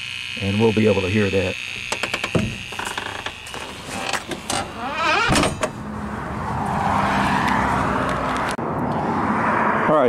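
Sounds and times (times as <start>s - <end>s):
door hinges creaking: 1.6s - 5.8s
door shutting with a thud: 2.0s - 2.8s, 4.9s - 5.8s.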